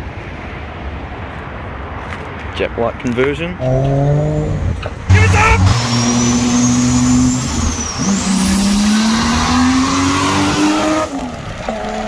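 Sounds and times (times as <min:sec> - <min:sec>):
high whine: 0:03.6 - 0:11.2
car engine revving: 0:03.6 - 0:12.0.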